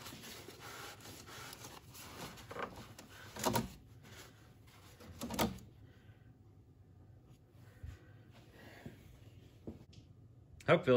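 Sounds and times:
towel rubbing and rustling: 0.0 - 5.2.

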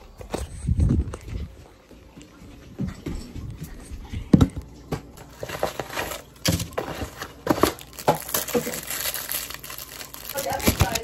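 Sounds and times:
plastic wrapper crinkling: 5.2 - 11.0.

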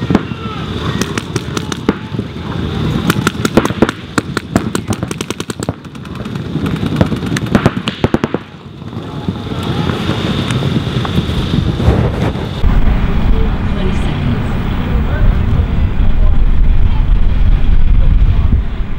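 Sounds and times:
paintball markers firing: 3.1 - 8.5.

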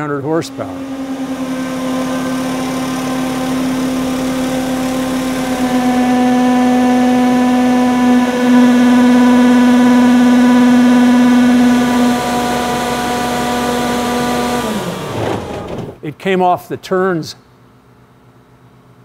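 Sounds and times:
low synthesizer drone: 0.0 - 15.1
noisy wash: 0.0 - 15.5.

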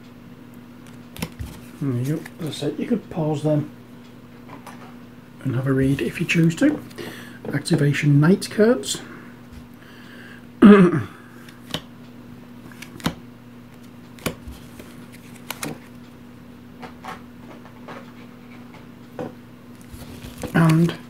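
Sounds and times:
faint steady hum: 0.0 - 21.0
cards tapping on table: 14.2 - 14.6.

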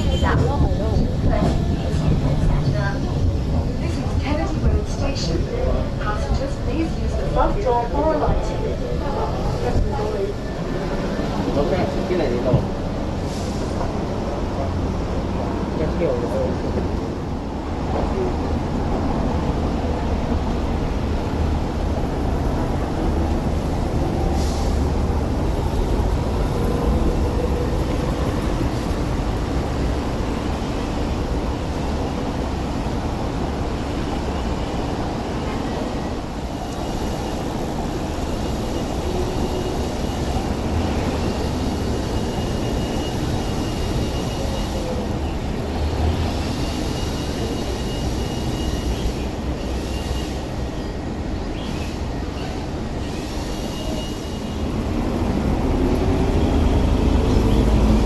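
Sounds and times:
tramcar rumbling on rails: 0.0 - 58.0.

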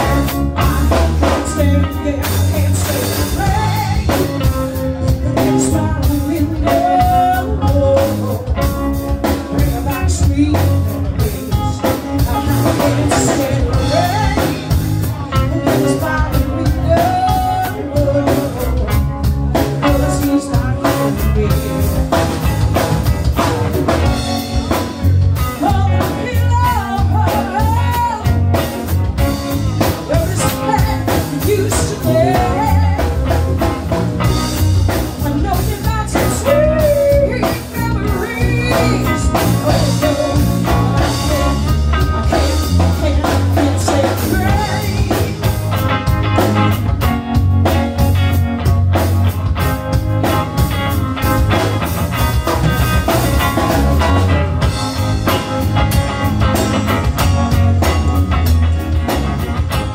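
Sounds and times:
woman singing: 0.0 - 22.6, 25.4 - 28.8, 29.8 - 33.7, 34.5 - 45.8
bass guitar: 0.0 - 59.9
drum kit: 0.0 - 59.9
electric guitar: 0.0 - 59.9.

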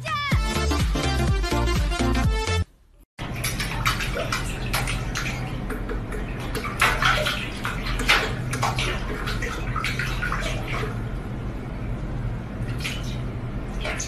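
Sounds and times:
low hum: 2.8 - 14.0
cat splashing water in sink: 3.2 - 11.2, 12.6 - 14.0.

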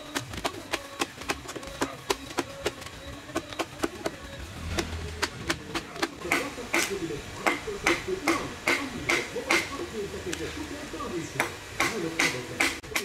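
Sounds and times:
axe chopping wood: 0.0 - 4.2.

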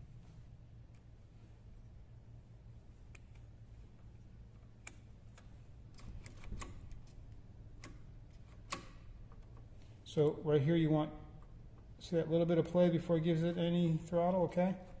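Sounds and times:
faint low hum: 0.0 - 15.0
light mechanical clicks: 3.0 - 10.0.

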